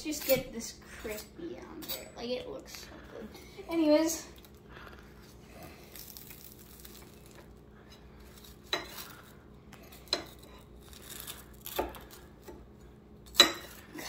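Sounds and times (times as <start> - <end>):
knife sawing through toasted crust: 9.8 - 12.5.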